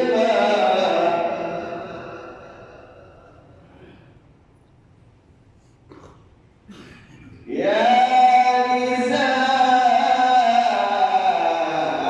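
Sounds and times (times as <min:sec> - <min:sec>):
man chanting with echo: 0:00.0 - 0:04.1, 0:07.4 - 0:12.0.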